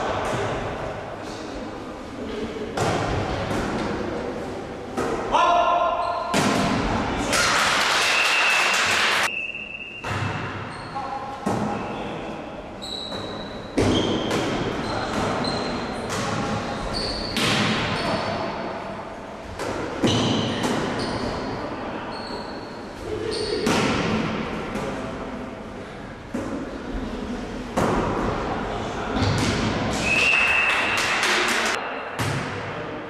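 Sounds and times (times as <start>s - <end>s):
volleyball hits echoing: 4.9s - 7.8s, 9.9s - 10.7s, 13.1s - 15.4s, 29.2s - 32.9s
sneakers squeaking on floor: 9.3s - 12.2s, 12.8s - 18.5s, 20.0s - 23.7s.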